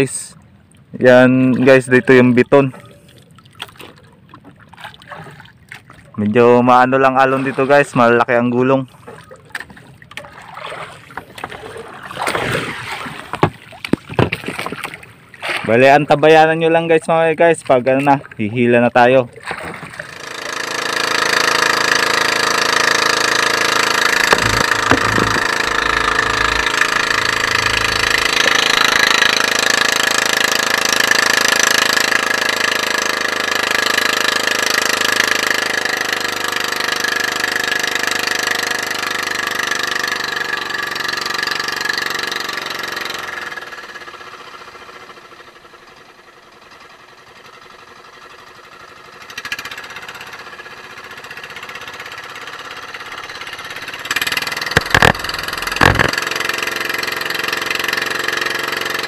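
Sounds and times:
boat engine running: 0.0 - 59.0
low thumps: 24.1 - 29.0, 54.7 - 56.2.

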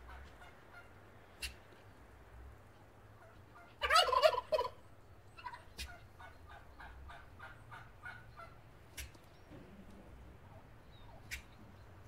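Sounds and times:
turkey gobbling: 0.0 - 1.7, 3.2 - 9.3, 10.5 - 11.6
short turkey calls: 0.0 - 1.8, 3.2 - 9.3, 10.5 - 11.8.

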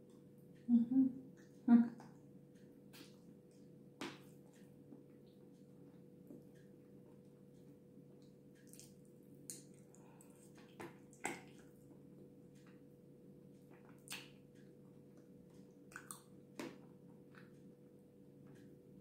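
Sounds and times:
faint steady hum: 0.0 - 19.0
wet mouth eating sounds: 8.6 - 10.5, 13.8 - 14.4, 15.9 - 16.3.

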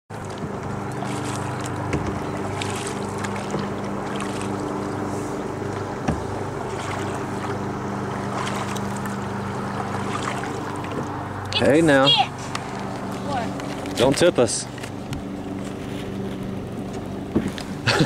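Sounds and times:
paddle splashing in water: 0.1 - 11.4
steady low hum: 0.1 - 18.0.

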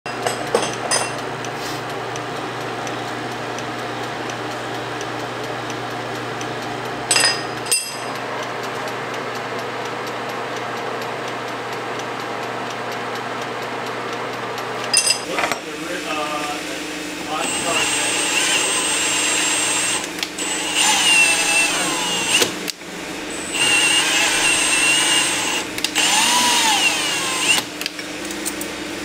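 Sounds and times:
lathe machinery humming: 0.1 - 29.0
metallic clinks of steel parts: 0.2 - 1.2, 7.1 - 8.2, 14.9 - 15.6.

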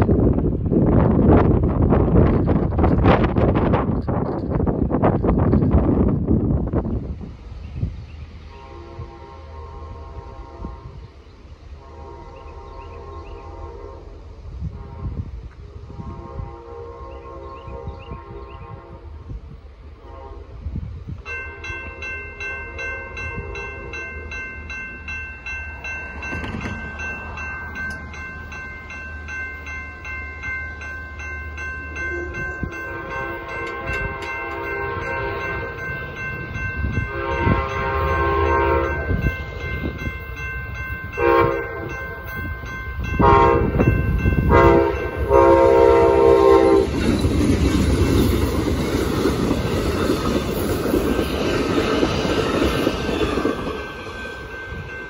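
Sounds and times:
train wheels rushing on rails: 0.0 - 55.0
train horn blasts: 8.5 - 11.2, 11.8 - 20.9, 22.7 - 24.2, 32.0 - 40.0, 41.0 - 47.1
crossing warning bell ringing: 21.1 - 55.0.

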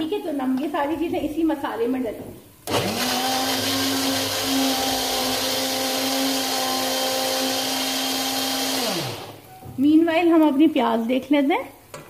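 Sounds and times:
electric blender grinding: 2.7 - 9.4.

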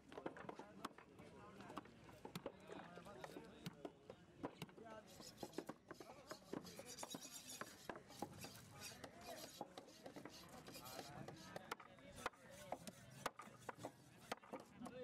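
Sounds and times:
blade knocking cutting board: 5.2 - 15.0.

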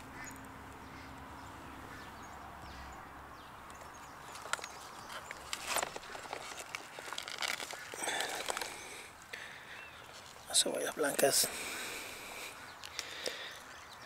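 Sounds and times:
rustles and knocks of onion stalks: 4.2 - 8.9.

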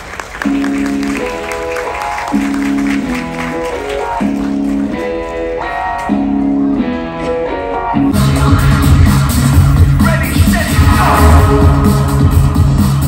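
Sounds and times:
plucked guitar chords: 2.6 - 10.0, 10.8 - 13.0.

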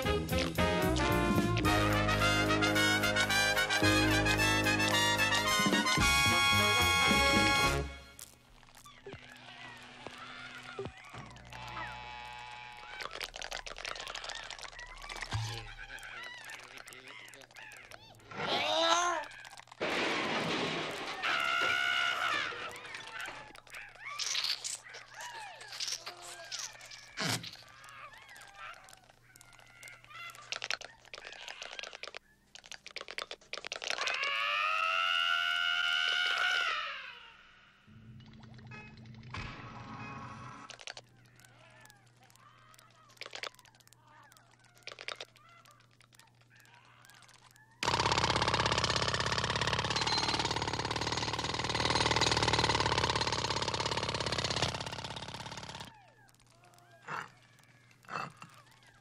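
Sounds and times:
cartoon hammer drill rattle: 47.2 - 55.9.

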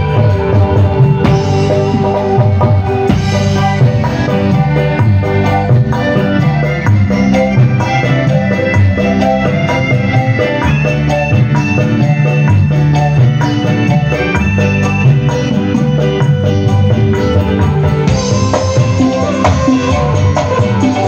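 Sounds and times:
bass line: 0.0 - 21.0
held melodic notes: 0.0 - 21.0.

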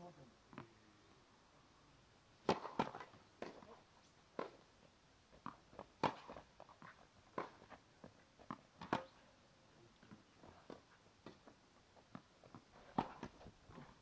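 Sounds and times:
tennis ball struck by rackets: 2.4 - 3.8, 4.4 - 4.6, 5.4 - 7.7, 8.4 - 9.2, 12.1 - 14.0.

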